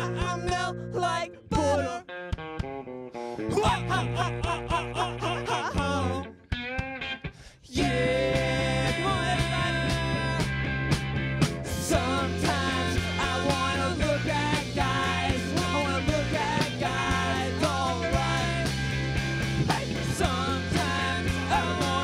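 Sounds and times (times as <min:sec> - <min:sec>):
person singing: 0:00.0 - 0:02.1, 0:03.3 - 0:06.4, 0:07.5 - 0:10.5, 0:11.7 - 0:18.8, 0:19.7 - 0:22.0
live rock band playing: 0:05.8 - 0:22.0.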